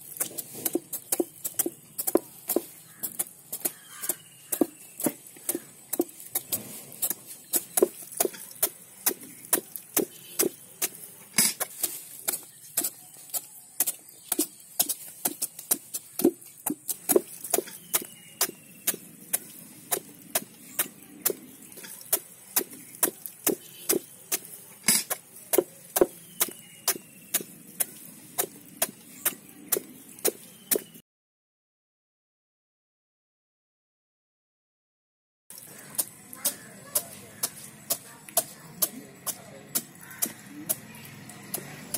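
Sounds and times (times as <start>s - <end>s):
cleavers chopping fruit: 0.0s - 31.0s, 35.5s - 41.9s.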